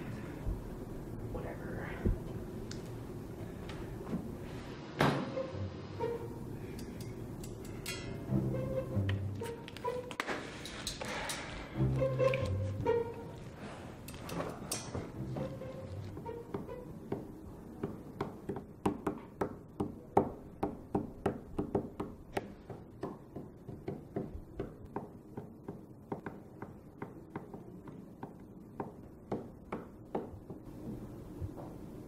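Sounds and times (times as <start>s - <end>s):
fingers tapping on a tabletop: 16.5s - 30.7s.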